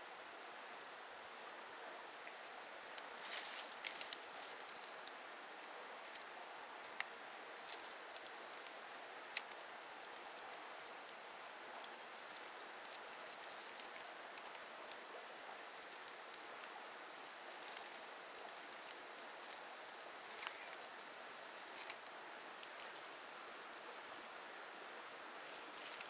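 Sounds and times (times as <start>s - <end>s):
faint outdoor hiss: 0.0s - 26.0s
small ticks and crackles: 0.0s - 26.0s.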